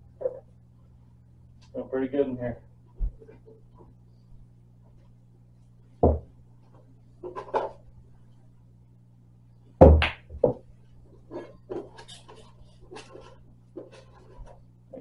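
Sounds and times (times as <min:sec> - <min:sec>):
cue striking ball: 0:09.9 - 0:10.6.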